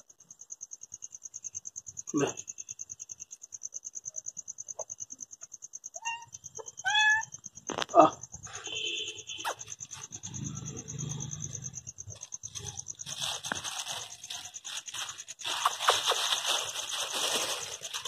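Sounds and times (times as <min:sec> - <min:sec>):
food wrapper crinkling: 0:12.6 - 0:18.0.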